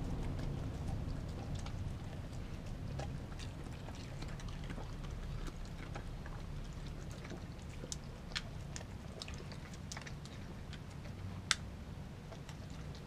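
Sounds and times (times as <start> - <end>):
dog licking and chewing: 0.0 - 13.0.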